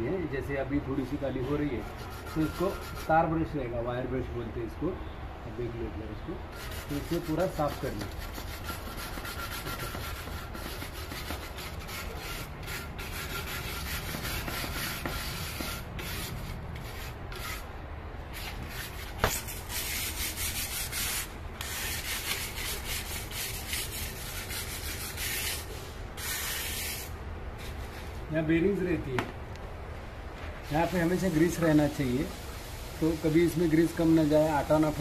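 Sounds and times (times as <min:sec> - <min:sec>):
wire brush scrubbing millstone: 0:02.0 - 0:03.2, 0:06.6 - 0:17.7, 0:18.3 - 0:27.8.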